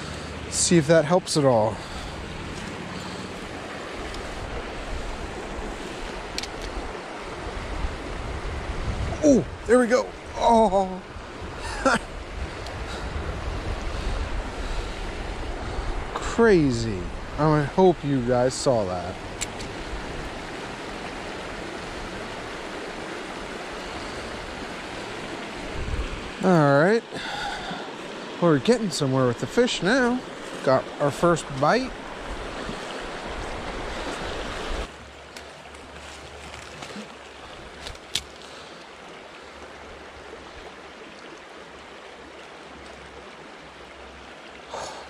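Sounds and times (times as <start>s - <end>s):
creek rushing over riffle: 0.0s - 35.0s.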